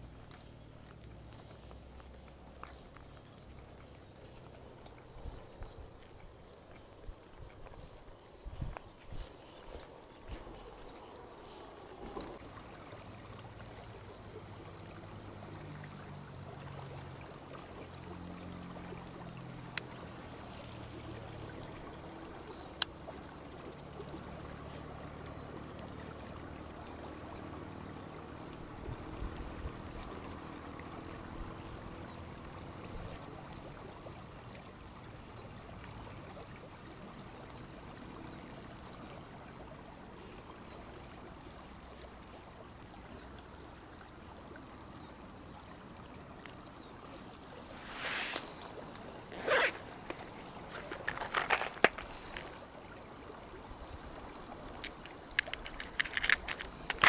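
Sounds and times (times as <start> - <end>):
river flowing: 0.0 - 57.0.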